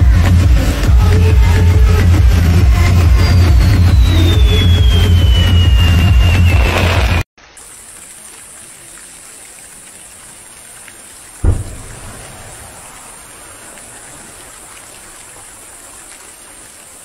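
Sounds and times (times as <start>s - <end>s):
steady hiss: 7.4s - 17.0s
firework boom: 11.4s - 13.0s.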